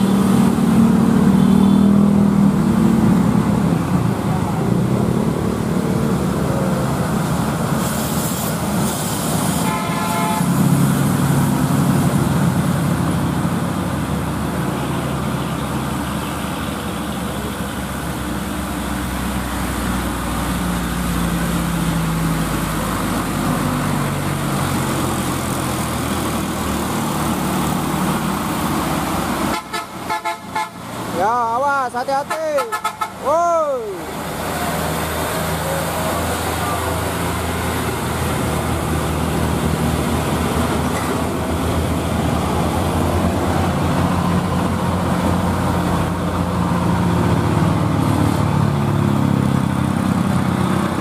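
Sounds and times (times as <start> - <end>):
diesel truck engines pulling hard: 0.0 - 51.0
truck horn: 1.3 - 2.0, 9.5 - 10.7, 29.4 - 30.9, 32.2 - 33.4.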